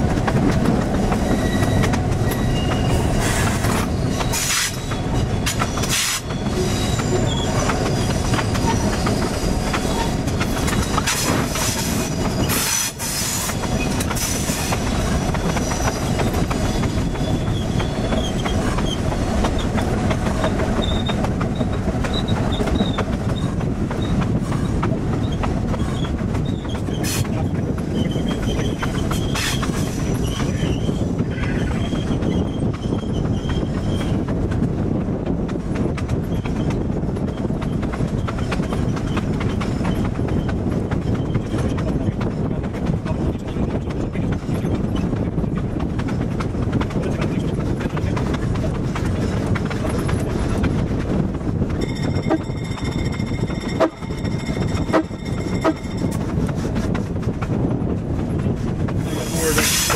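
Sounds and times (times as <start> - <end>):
train rumbling on track: 0.0 - 59.9
high wheel squeal: 1.1 - 19.0, 20.4 - 24.1.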